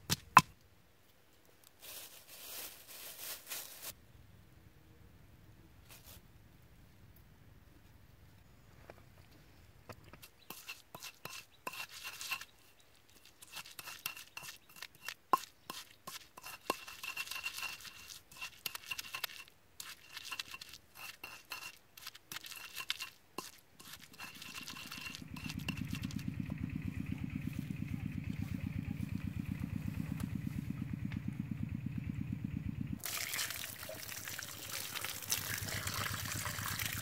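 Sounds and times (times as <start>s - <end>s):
pestle pounding in stone mortar: 13.5s - 26.2s
low pulsing engine: 24.4s - 33.0s.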